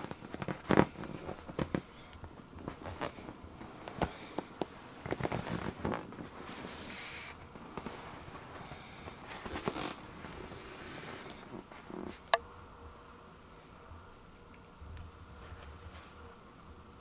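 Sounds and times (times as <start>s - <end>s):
hand rubbing inflated vinyl toy: 0.0s - 12.4s, 15.3s - 16.2s
hissing rub: 0.2s - 12.4s.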